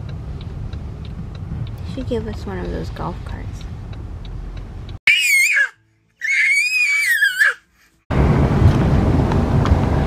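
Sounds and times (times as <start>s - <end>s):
baby squealing cry: 5.1s - 7.6s.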